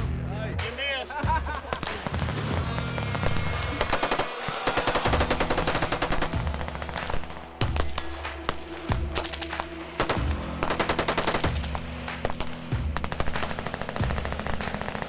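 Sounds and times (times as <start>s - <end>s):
automatic gunfire: 3.1s - 8.6s, 9.2s - 15.0s.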